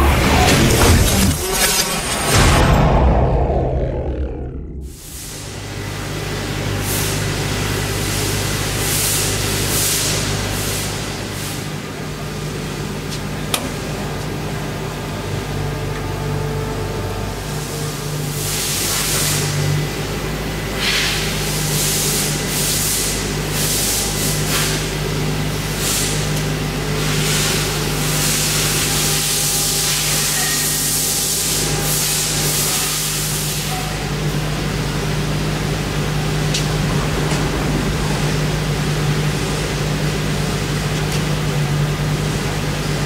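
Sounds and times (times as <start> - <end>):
machine idling hum: 0.0 - 6.6, 35.6 - 43.0.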